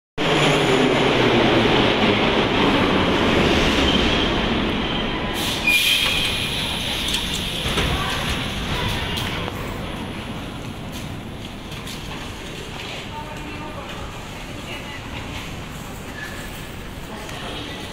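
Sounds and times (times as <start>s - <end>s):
metro train rumble: 0.2s - 17.9s
high-pitched wheel squeal: 3.7s - 6.6s.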